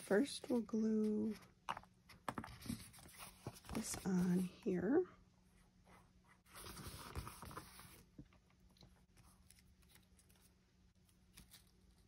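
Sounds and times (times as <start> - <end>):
paper rustling on a table: 6.5 - 8.1.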